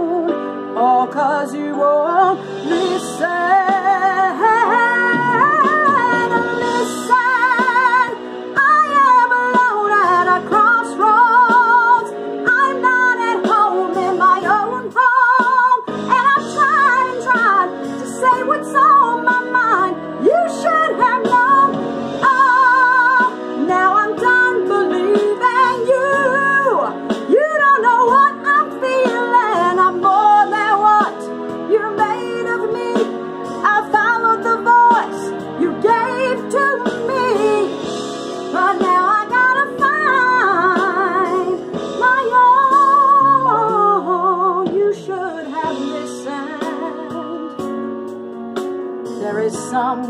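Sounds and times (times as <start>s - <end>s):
woman singing with vibrato: 0.0s - 37.9s, 38.5s - 47.7s
sustained instrumental chords: 39.7s - 44.6s.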